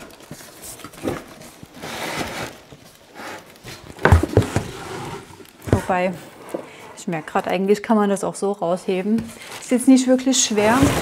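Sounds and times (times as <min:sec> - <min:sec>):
cardboard and plastic wrap rustling: 0:00.0 - 0:07.8, 0:08.9 - 0:11.0.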